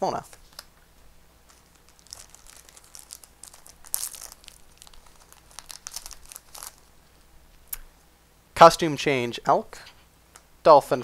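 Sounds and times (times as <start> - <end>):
foil wrapper crinkling: 1.4 - 7.3
foil wrapper tearing open: 1.5 - 6.9.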